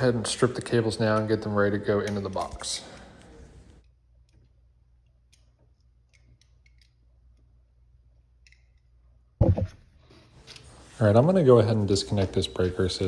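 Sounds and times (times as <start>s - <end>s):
wire strippers clicking and snipping: 0.0s - 9.0s
loud thump: 9.4s - 9.8s.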